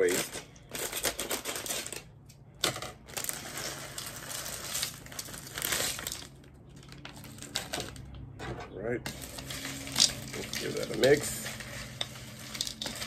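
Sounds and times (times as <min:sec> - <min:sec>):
plastic snack bag crinkling: 0:03.0 - 0:08.1, 0:09.1 - 0:13.0
crackers shaken into a bowl: 0:03.2 - 0:08.0, 0:09.1 - 0:13.0.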